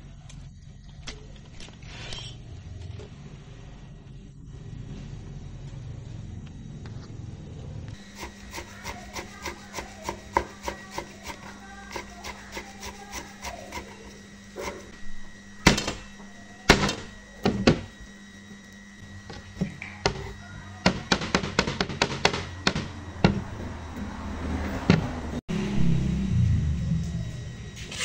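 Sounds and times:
knife chopping herbs on board: 8.0 - 14.0.

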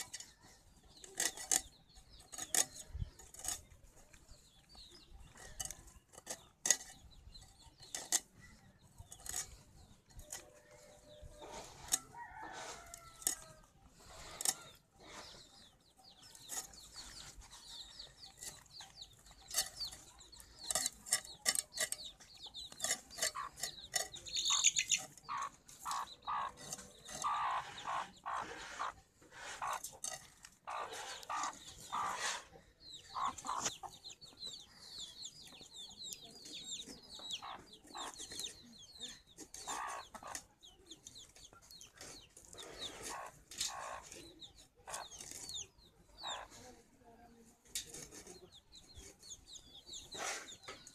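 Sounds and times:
chickens clucking: 0.0 - 50.9
knocks and scrapes: 0.0 - 50.9.

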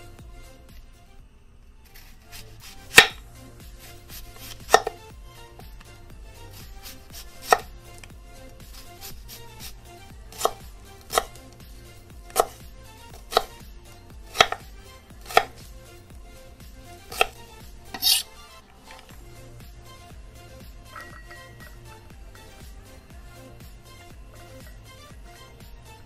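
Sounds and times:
rough knife stroke: 1.9 - 5.0, 6.4 - 11.4, 12.3 - 12.6, 13.2 - 13.6, 14.3 - 14.6, 15.2 - 15.6, 17.0 - 19.1.

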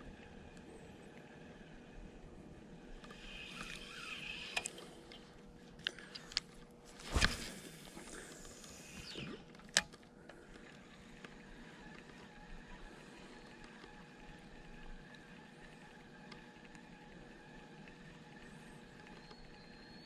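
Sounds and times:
fishing reel clicks: 3.0 - 4.8
fishing rod cast whoosh: 7.0 - 7.6.

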